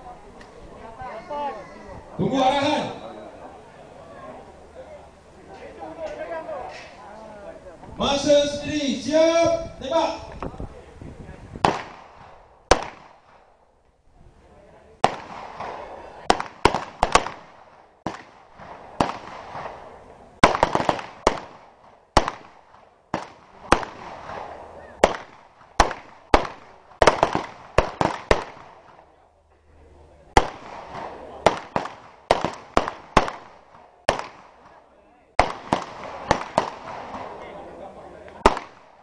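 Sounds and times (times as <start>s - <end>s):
pistol shots with echo: 11.6s - 13.5s, 15.0s - 29.0s, 30.4s - 34.8s, 35.4s - 37.5s, 38.4s - 39.0s.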